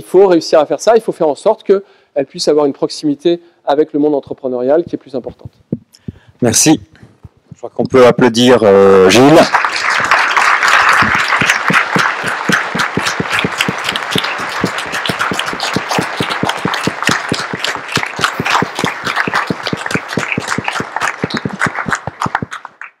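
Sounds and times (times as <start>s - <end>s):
audience applauding: 9.0s - 23.0s.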